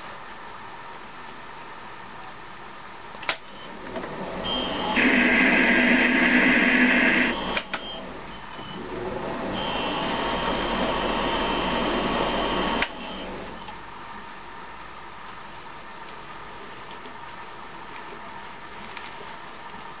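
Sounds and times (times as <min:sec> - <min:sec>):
lathe spindle spinning: 0:03.4 - 0:13.8
tool cutting metal grinding: 0:03.7 - 0:13.7.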